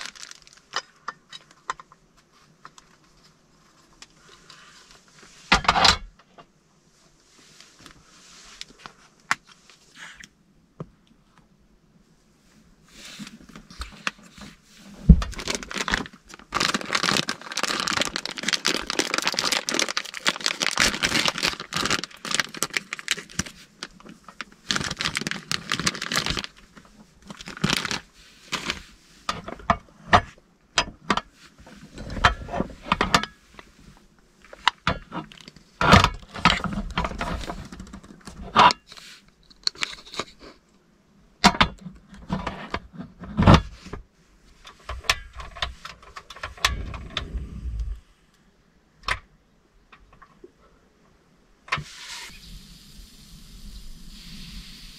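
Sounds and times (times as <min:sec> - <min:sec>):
plastic packaging crinkling and tearing: 0:00.0 - 0:01.0, 0:15.0 - 0:28.9, 0:35.2 - 0:38.4.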